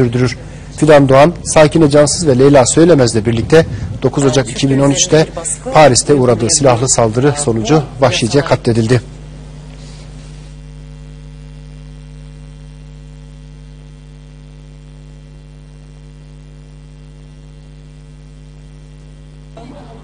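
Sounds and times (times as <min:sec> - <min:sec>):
electrical mains hum: 0:00.0 - 0:20.0.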